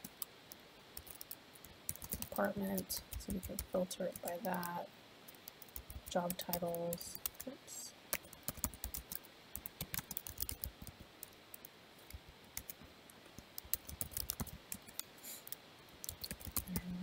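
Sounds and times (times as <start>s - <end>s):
keyboard typing clicks: 1.0s - 4.8s, 5.4s - 7.5s, 8.1s - 12.8s, 13.4s - 16.8s.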